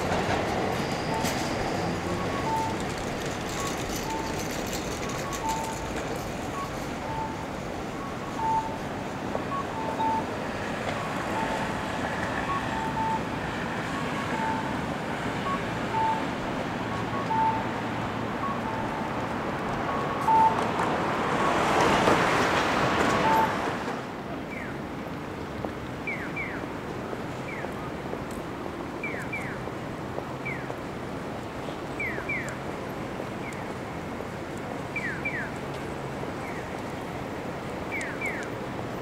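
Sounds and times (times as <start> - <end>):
street traffic noise: 0.0 - 39.0
faint electronic beeps: 12.4 - 13.3.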